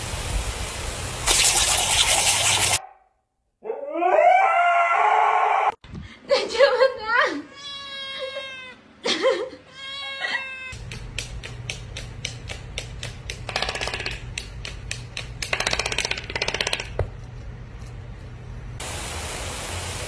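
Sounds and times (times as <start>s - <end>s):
background music with clicking beat: 10.8s - 16.7s.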